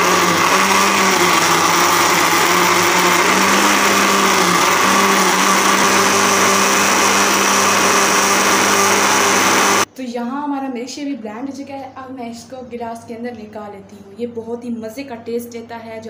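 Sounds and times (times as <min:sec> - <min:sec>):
blender running: 0:00.0 - 0:09.9.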